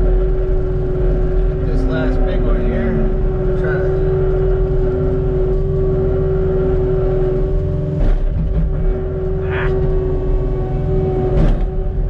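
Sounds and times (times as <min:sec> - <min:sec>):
diesel engine running under load: 0:00.0 - 0:12.0
steady whine: 0:00.0 - 0:12.0
clunk: 0:11.3 - 0:11.8.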